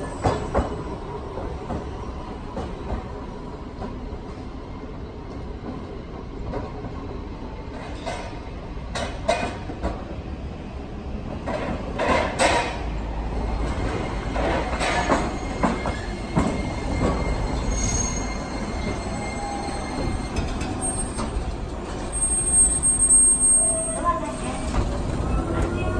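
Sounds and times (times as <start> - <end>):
streetcar low rumble: 0.0 - 25.9
high wheel squeal: 14.8 - 25.9.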